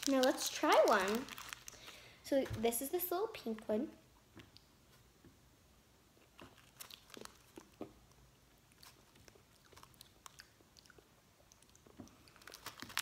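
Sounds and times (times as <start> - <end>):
candy tablet being chewed: 0.0 - 2.0, 6.2 - 13.0.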